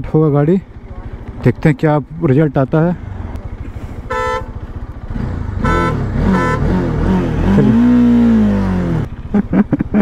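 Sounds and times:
short horn toots: 0:04.0 - 0:04.6, 0:05.6 - 0:06.9
engine revving: 0:04.9 - 0:09.5.

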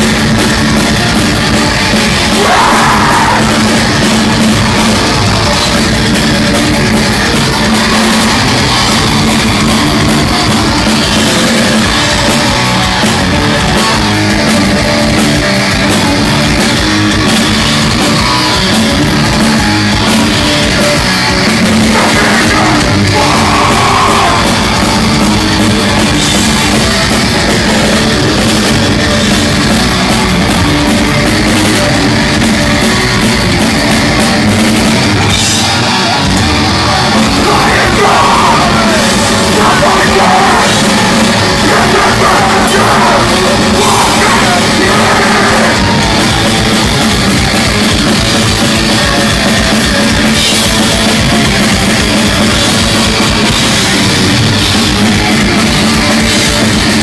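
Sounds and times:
distorted guitars: 0:00.0 - 0:57.0
drums: 0:00.0 - 0:57.0
harsh shouted vocals: 0:00.0 - 0:57.0.

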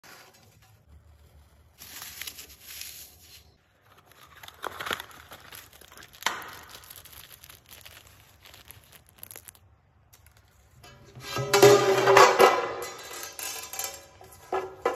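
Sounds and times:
packaging crinkling and tearing: 0:01.7 - 0:10.8.

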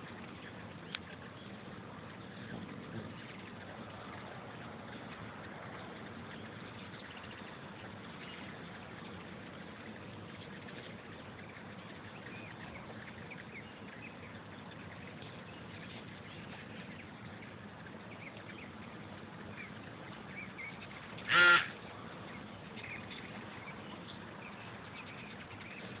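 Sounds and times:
hummingbird chip calls: 0:00.0 - 0:26.0
whirring hum of wings: 0:00.0 - 0:26.0
loud honk-like call: 0:21.2 - 0:21.8.

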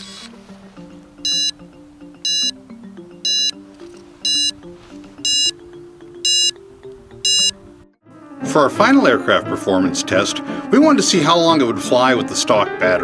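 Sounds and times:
short high beeps: 0:01.2 - 0:01.6, 0:02.2 - 0:02.6, 0:03.2 - 0:03.6, 0:04.2 - 0:04.6, 0:05.2 - 0:05.6, 0:06.2 - 0:06.6, 0:07.2 - 0:07.6.

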